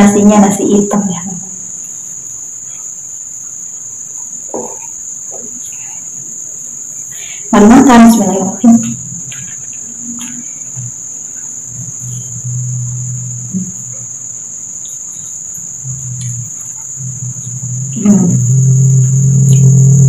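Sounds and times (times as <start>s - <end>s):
insects trilling: 0.0s - 20.0s
low hum: 11.7s - 14.2s, 15.8s - 20.0s
loud low drone: 15.8s - 20.0s.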